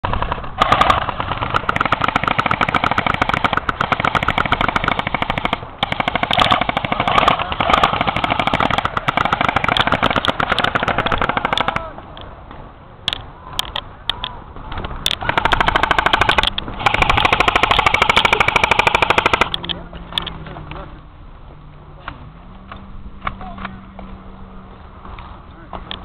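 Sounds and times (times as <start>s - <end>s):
airsoft gun firing full auto: 0.0s - 11.9s, 15.2s - 19.5s.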